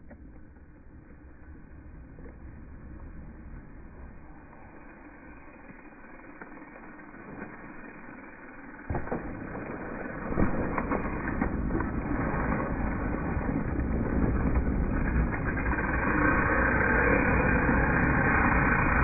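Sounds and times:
bike tyres rolling over dirt: 0:00.0 - 0:19.0
bike knocking and rattling: 0:04.2 - 0:19.0.

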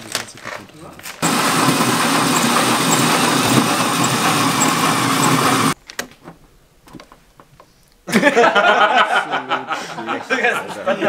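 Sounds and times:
hole saw grinding through sheet metal: 0:01.2 - 0:05.8.

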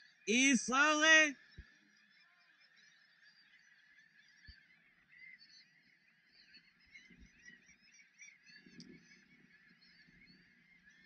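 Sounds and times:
distant birds chattering: 0:00.2 - 0:01.3.

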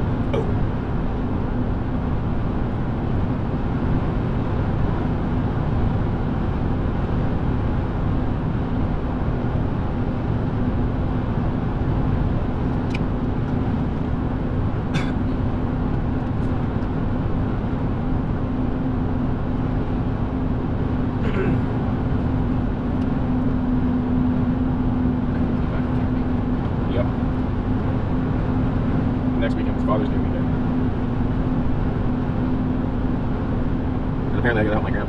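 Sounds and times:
car road noise: 0:00.0 - 0:35.0.

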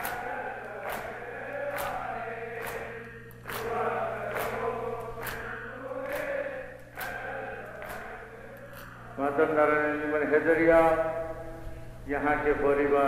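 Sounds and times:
hands slapping chests: 0:00.0 - 0:08.1
crowd singing in unison: 0:00.0 - 0:09.7.

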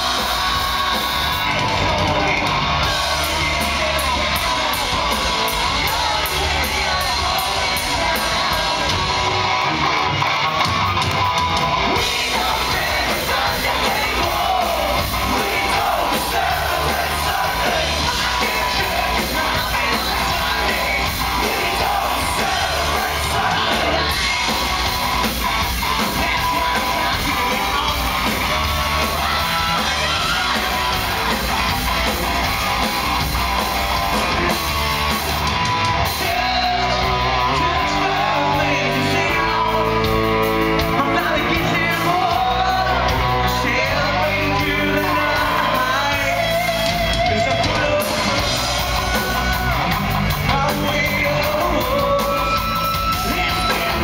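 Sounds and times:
crowd shouting: 0:00.0 - 0:54.0
live rock band playing: 0:00.0 - 0:54.0
person singing: 0:11.9 - 0:33.0, 0:36.0 - 0:54.0.

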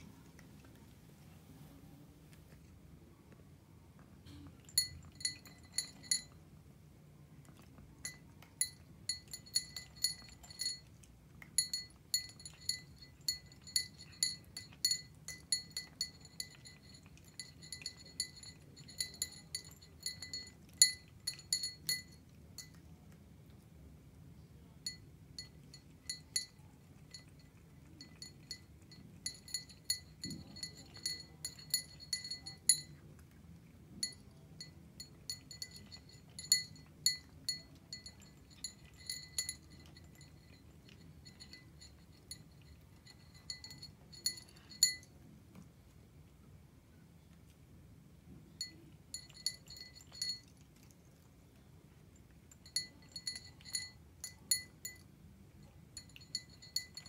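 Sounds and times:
cat eating dry kibble: 0:00.0 - 0:57.0
kibble clinking in glass bowl: 0:04.6 - 0:06.4, 0:07.7 - 0:22.8, 0:24.9 - 0:33.0, 0:34.0 - 0:45.2, 0:48.6 - 0:50.8, 0:52.5 - 0:57.0.

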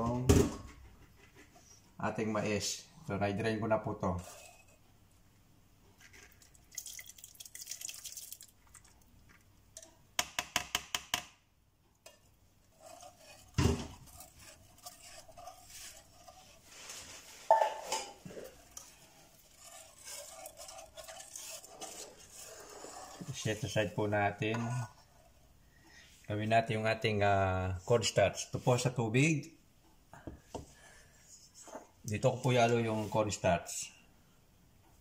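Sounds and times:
corn kernels poured into liquid: 0:06.0 - 0:09.4
whisk clinking against pot: 0:12.0 - 0:23.8.

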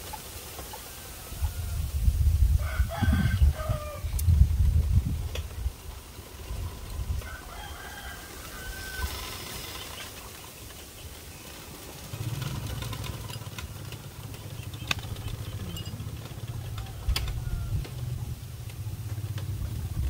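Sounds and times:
small engine running: 0:04.2 - 0:20.0
sharp clicks: 0:13.6 - 0:15.7.

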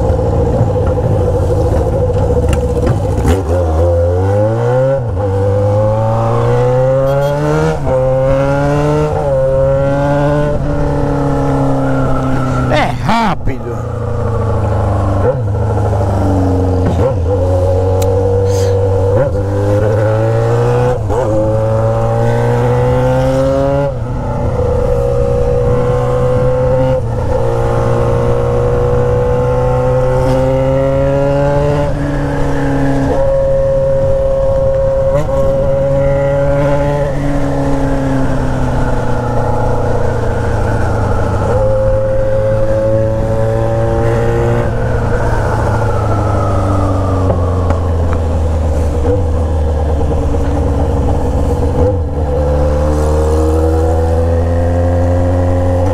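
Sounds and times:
motorcycle engine accelerating: 0:00.0 - 0:55.9.

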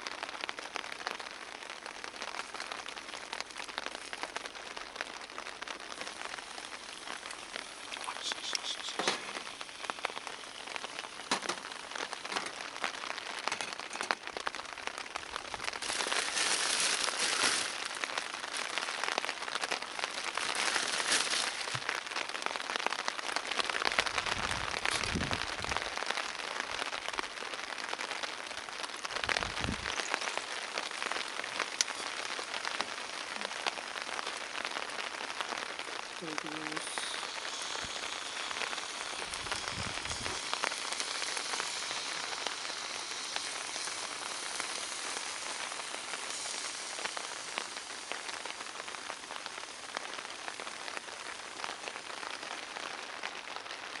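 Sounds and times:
eggs sizzling in a frying pan: 0:00.0 - 0:54.0.

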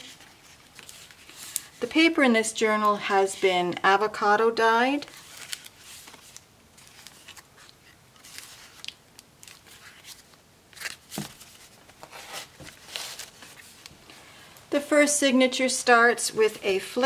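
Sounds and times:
paper pages rustling: 0:00.0 - 0:02.1, 0:05.0 - 0:14.1.

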